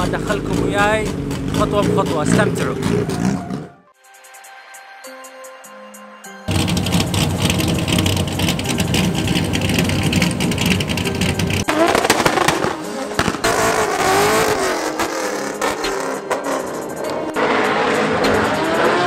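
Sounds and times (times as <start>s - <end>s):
car engine popping: 0.0s - 3.7s, 6.5s - 19.0s
tyres squealing: 0.0s - 3.9s.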